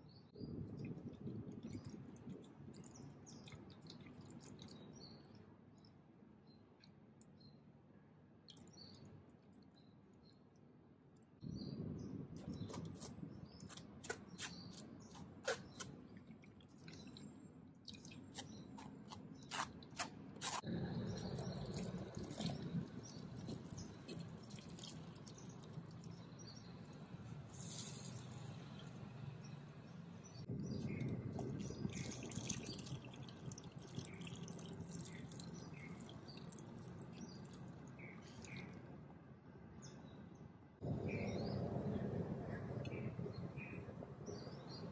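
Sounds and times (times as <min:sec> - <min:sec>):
liquid draining: 0:21.1 - 0:26.2.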